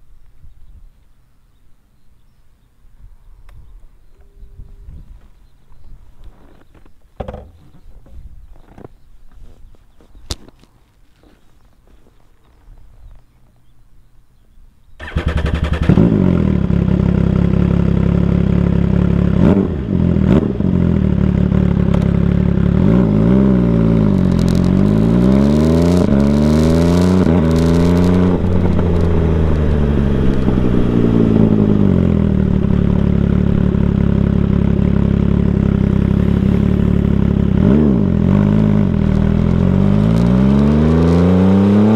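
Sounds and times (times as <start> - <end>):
motorcycle engine through gears: 15.0 - 41.9.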